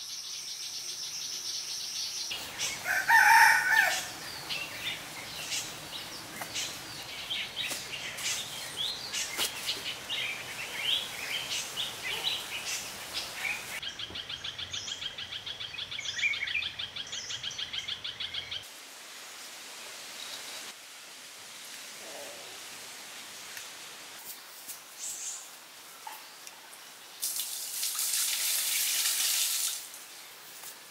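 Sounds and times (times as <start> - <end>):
birds chirping and calling: 0.8 - 18.6
steady hiss: 4.0 - 13.8, 18.6 - 30.9.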